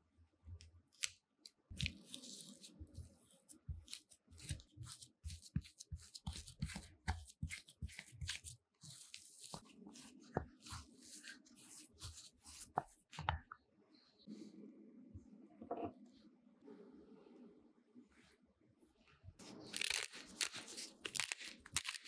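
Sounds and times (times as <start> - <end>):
wooden spoon scraping bowl: 4.0 - 13.4.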